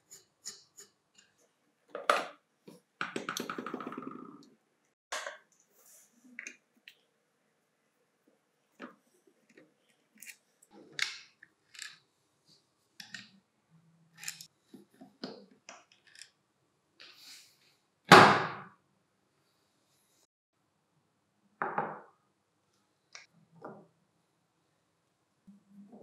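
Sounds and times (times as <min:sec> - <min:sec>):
screwdriver clicking and scraping: 0:14.2 - 0:14.5.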